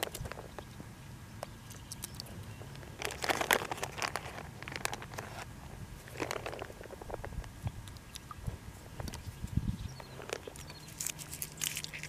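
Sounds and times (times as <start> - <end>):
pods snapping and crinkling: 0.0 - 0.7, 1.4 - 5.5, 10.0 - 12.0.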